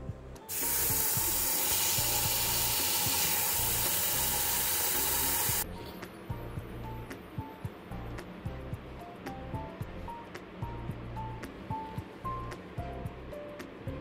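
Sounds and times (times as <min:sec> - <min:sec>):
faucet spraying water into bowl: 0:00.5 - 0:05.6.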